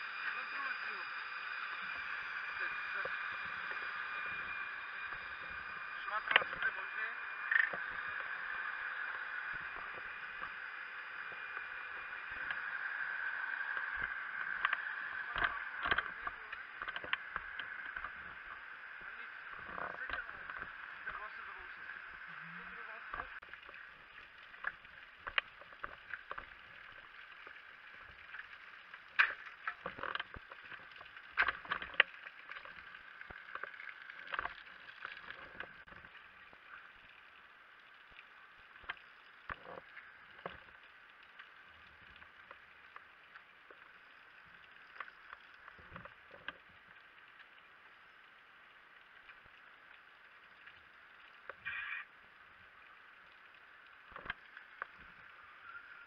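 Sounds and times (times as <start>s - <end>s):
steady machine drone: 0.0s - 36.0s.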